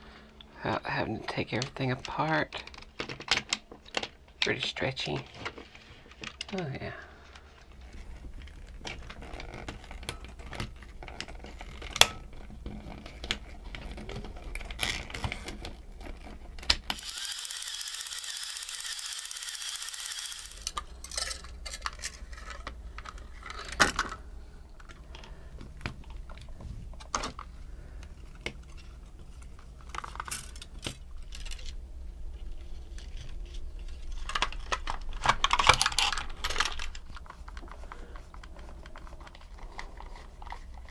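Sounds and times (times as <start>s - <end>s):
plastic parts clicking and tapping: 1.5s - 24.2s, 32.9s - 40.9s.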